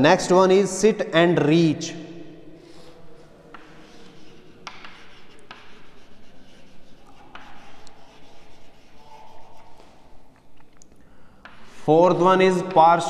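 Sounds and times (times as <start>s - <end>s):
chalk scratching on chalkboard: 2.7s - 10.3s, 11.4s - 12.8s
chalk tapping on board: 3.5s - 10.1s, 11.4s - 13.0s.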